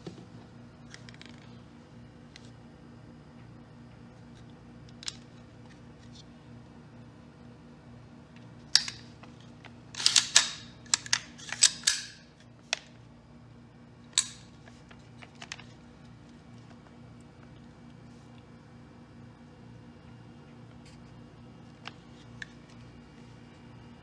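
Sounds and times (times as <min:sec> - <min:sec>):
rifle action clicking and clacking: 0:10.0 - 0:12.3, 0:14.2 - 0:14.4.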